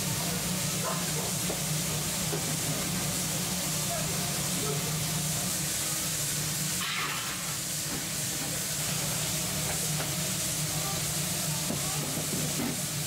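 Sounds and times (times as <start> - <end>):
sauce bubbling and sizzling: 5.2 - 11.3.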